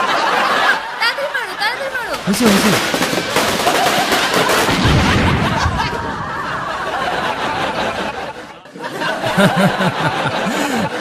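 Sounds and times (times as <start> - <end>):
bomb blast noise: 2.0 - 8.3
man chuckling: 8.0 - 11.0.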